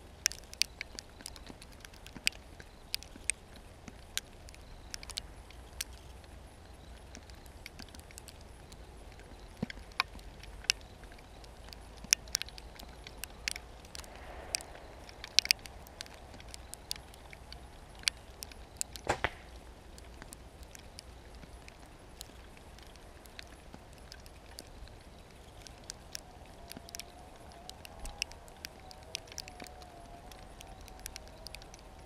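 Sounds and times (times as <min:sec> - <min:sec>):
sharp clicks and snaps: 0:00.0 - 0:32.0
low rumble: 0:13.6 - 0:18.3.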